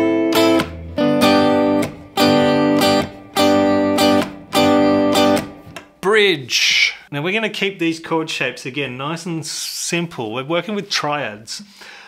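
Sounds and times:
guitar strumming muted chords: 0:00.0 - 0:06.1.

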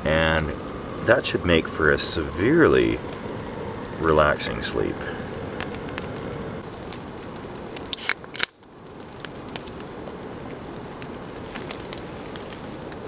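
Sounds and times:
loud hissing bursts: 0:00.0 - 0:06.7, 0:07.8 - 0:08.6
camp stove hissing: 0:00.0 - 0:13.0.

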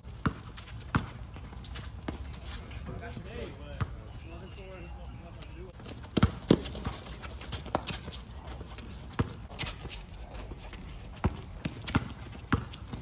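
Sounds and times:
basketball bouncing on hard court: 0:00.1 - 0:02.2, 0:06.0 - 0:08.2, 0:09.0 - 0:09.6, 0:11.1 - 0:13.0
footsteps running on court: 0:04.5 - 0:13.0.

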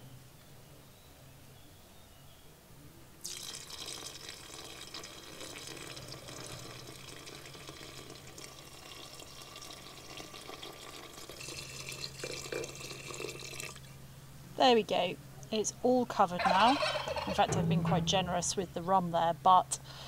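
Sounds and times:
liquid pouring from a bottle: 0:03.2 - 0:14.0.

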